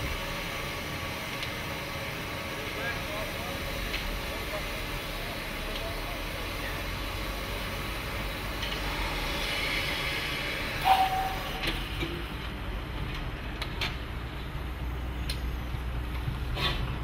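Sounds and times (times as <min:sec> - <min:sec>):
locomotive hissing steam: 0:00.0 - 0:12.7
metallic clank with ringing squeal: 0:08.8 - 0:11.8.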